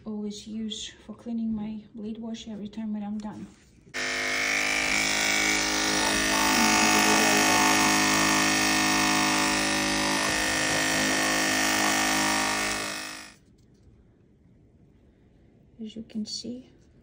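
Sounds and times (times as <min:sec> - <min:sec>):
pet clipper buzzing: 0:04.0 - 0:13.4.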